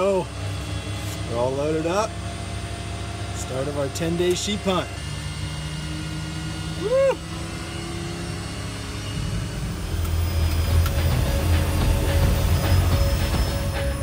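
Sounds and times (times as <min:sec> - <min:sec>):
propeller engine drone: 0:00.0 - 0:14.0
person whooping: 0:06.8 - 0:07.3.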